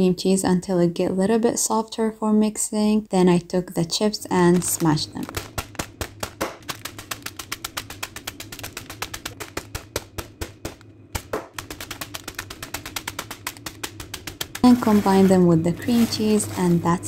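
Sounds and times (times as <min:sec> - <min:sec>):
chips crunching in plastic bag: 0:04.4 - 0:07.0, 0:13.6 - 0:17.0.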